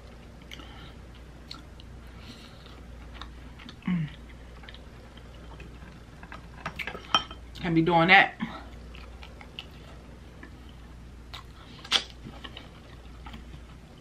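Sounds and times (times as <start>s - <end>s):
low voice hum: 3.7s - 4.3s
wet chewing: 8.7s - 13.9s.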